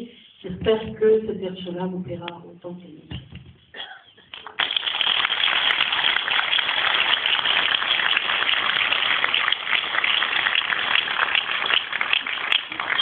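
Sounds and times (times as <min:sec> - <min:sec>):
audience applauding: 0:04.3 - 0:13.0.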